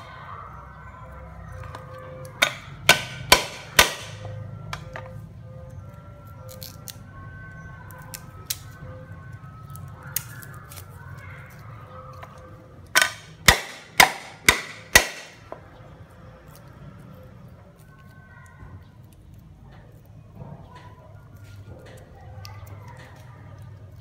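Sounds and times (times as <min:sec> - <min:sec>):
cleaver chopping on board: 0:02.4 - 0:04.2, 0:13.0 - 0:15.4.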